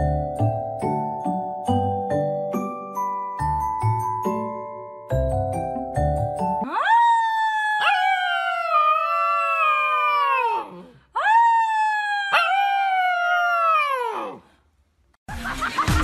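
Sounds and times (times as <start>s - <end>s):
puppy howling: 6.6s - 14.4s.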